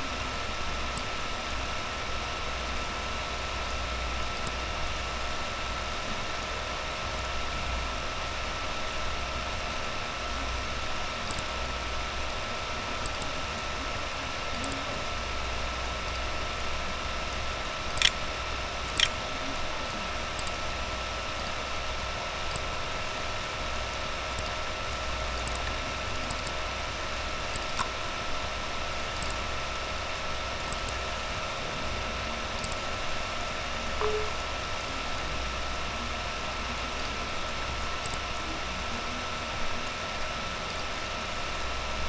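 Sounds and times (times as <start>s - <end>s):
computer hum and whine: 0.0s - 42.0s
faint small clicks: 11.3s - 11.5s, 18.0s - 18.2s, 20.4s - 20.6s, 25.4s - 26.6s, 30.7s - 31.0s, 32.6s - 32.8s, 38.0s - 38.2s
mouse button clicks: 18.0s - 18.2s, 34.0s - 34.4s.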